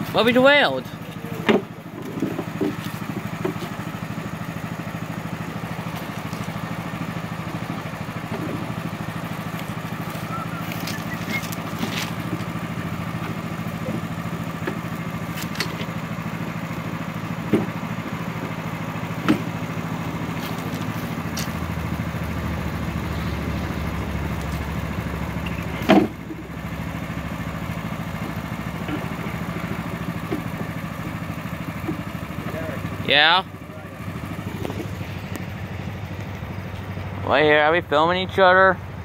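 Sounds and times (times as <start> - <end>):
small engine idling: 0.0 - 39.0.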